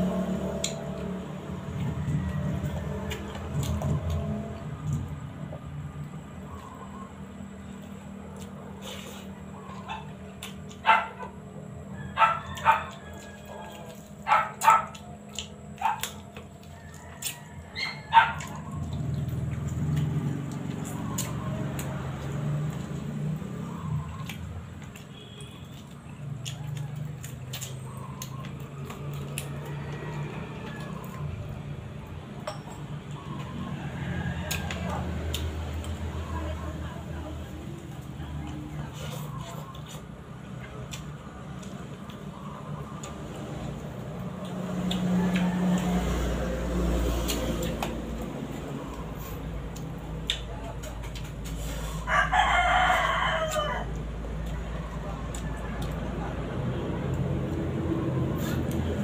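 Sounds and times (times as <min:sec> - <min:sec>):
rooster crowing: 0:01.7 - 0:03.2, 0:11.8 - 0:14.8, 0:16.6 - 0:18.4, 0:29.3 - 0:31.6, 0:33.2 - 0:35.4, 0:45.0 - 0:46.9, 0:51.6 - 0:56.4
wet mouth clicks and smacks: 0:25.7 - 0:29.6, 0:44.3 - 0:46.1, 0:49.7 - 0:51.6
person gnawing and sucking: 0:44.2 - 0:52.1, 0:57.2 - 0:59.0.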